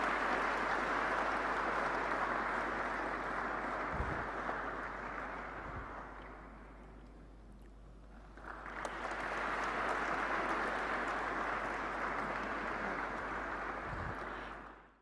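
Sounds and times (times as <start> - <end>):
audience applauding: 0.0 - 6.6, 8.2 - 15.0.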